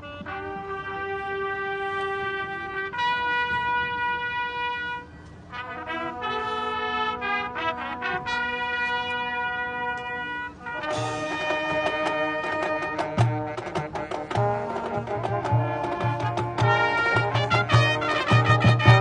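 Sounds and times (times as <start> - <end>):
brass section playing chords: 0.0 - 19.0
marching drums: 10.7 - 19.0.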